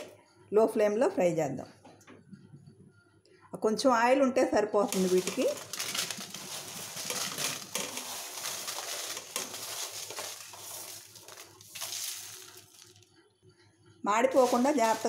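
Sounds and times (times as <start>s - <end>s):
dried chillies rattling in pan: 4.8s - 13.1s, 14.2s - 15.0s.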